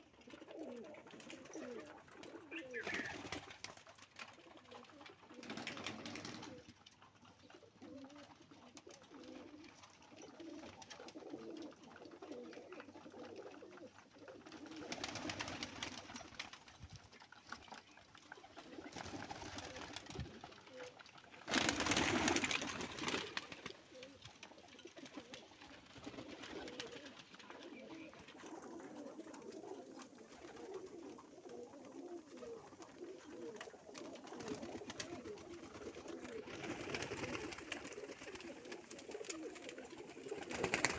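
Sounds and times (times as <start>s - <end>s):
pigeons cooing: 0.0s - 16.6s, 17.4s - 40.9s.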